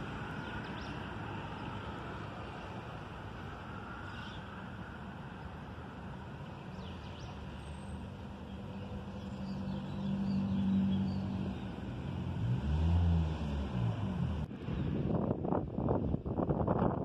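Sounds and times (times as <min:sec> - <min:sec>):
traffic drone on bridge: 0:00.0 - 0:17.0
vehicle passing: 0:07.3 - 0:15.2.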